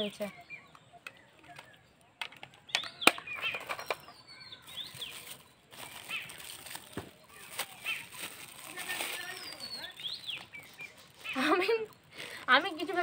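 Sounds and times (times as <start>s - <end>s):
birds chirping: 0.0s - 13.0s
paper and plastic crinkling: 3.4s - 13.0s.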